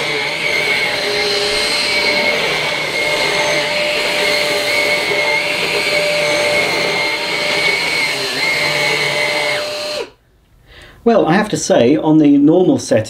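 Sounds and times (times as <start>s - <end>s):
stick vacuum motor whine: 0.0s - 10.2s.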